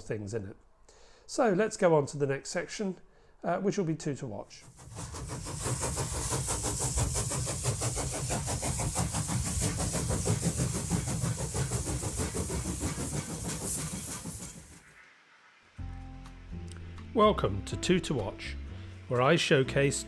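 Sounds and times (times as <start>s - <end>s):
train running: 4.7s - 15.3s.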